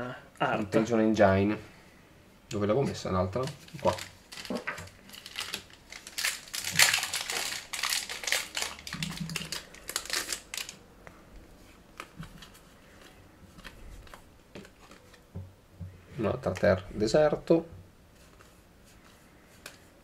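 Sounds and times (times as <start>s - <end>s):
plastic wrapper crinkling and tearing: 3.3s - 10.9s.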